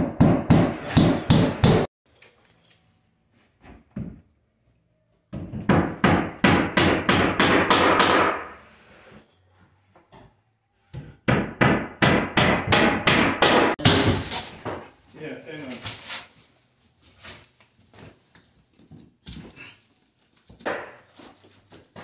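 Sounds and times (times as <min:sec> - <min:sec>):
hammer driving nails into wood: 0:05.4 - 0:08.5, 0:11.0 - 0:14.2.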